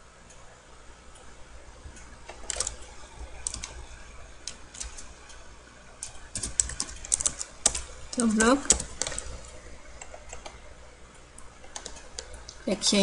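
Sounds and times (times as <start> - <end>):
steady low hum: 0.0 - 13.0
computer keyboard and mouse clicks: 1.9 - 3.8, 4.4 - 5.4, 6.0 - 9.3, 10.0 - 12.6.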